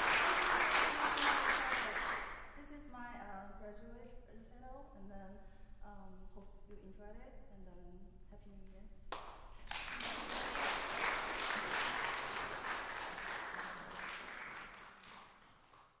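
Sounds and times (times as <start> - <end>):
audience applauding: 0.0 - 2.3, 9.7 - 16.0.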